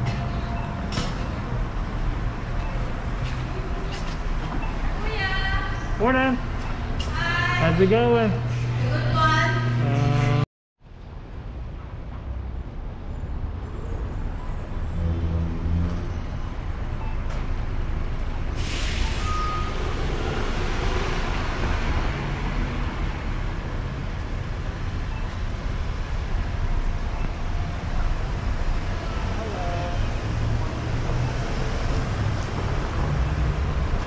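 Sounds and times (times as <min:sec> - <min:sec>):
road noise: 0:00.0 - 0:34.0
vehicle engines rumbling: 0:00.0 - 0:34.0
burst of hiss: 0:18.6 - 0:19.3.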